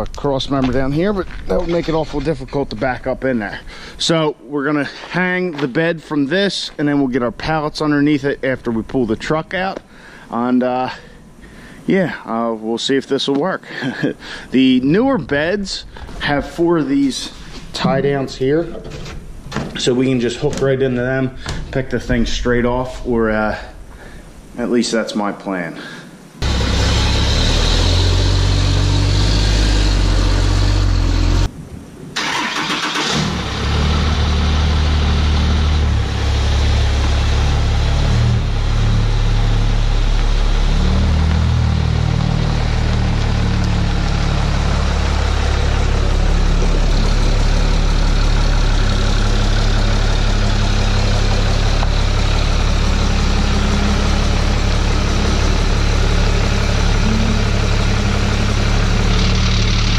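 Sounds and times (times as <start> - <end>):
diesel engine running at low speed: 26.4 - 31.5, 33.0 - 59.9.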